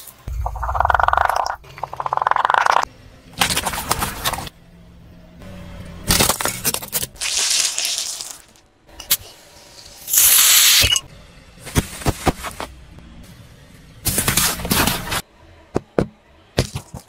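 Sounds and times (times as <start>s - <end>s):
tyre crushing small objects: 6.1s - 8.6s, 16.6s - 17.0s
aerosol cans bursting and hissing: 10.0s - 11.0s.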